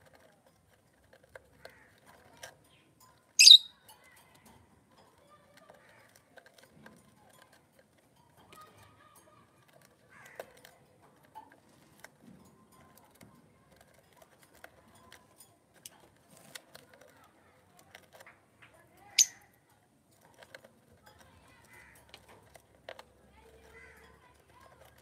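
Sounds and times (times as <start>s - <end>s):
sharp high bird chirp: 3.4s - 3.8s.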